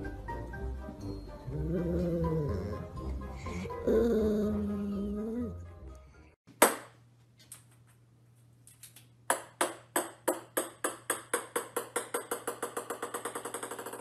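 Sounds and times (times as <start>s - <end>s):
small ball bouncing on wooden floor: 9.3s - 14.0s.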